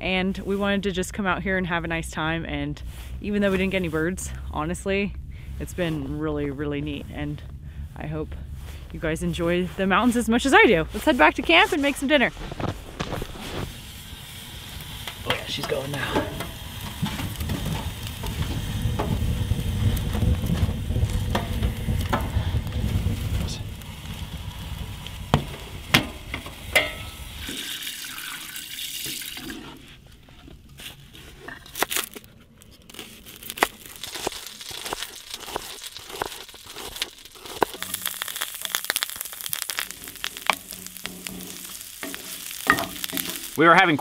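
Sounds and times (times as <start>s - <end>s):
low rumble: 0.0s - 27.5s
wooden spatula scraping a pot: 7.0s - 27.8s, 29.4s - 31.8s, 32.9s - 43.6s
food sizzling in butter: 10.0s - 29.7s, 33.0s - 44.0s.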